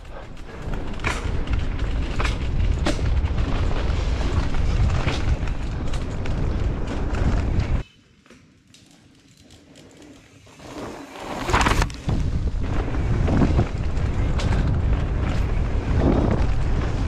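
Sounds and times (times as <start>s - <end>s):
bike clattering over bumps: 0.0s - 7.8s, 11.4s - 17.0s
wind rumbling on microphone: 0.0s - 7.8s, 11.4s - 17.0s
tyre noise on dirt: 10.5s - 17.0s.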